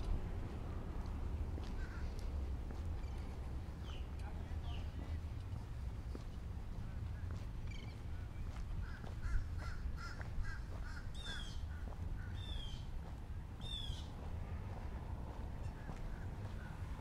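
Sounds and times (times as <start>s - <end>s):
steady low rumble: 0.0s - 17.0s
birds calling: 1.6s - 13.0s, 13.6s - 14.2s.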